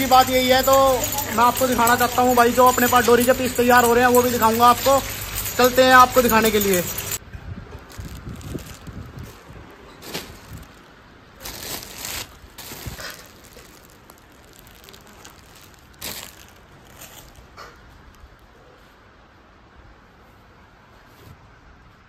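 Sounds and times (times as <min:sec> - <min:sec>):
plastic wrapping crinkling: 0:00.0 - 0:07.2, 0:07.8 - 0:18.3.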